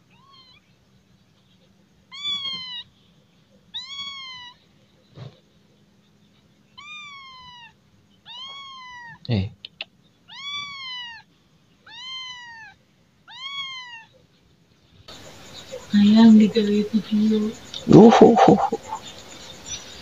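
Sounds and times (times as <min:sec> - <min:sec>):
kitten meowing: 0:00.1 - 0:00.6, 0:02.1 - 0:02.9, 0:03.7 - 0:04.6, 0:06.8 - 0:14.1.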